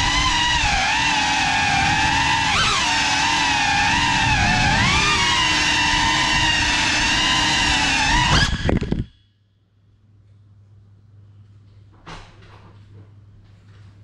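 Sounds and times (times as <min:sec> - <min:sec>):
drone motors whining: 0:00.0 - 0:09.1.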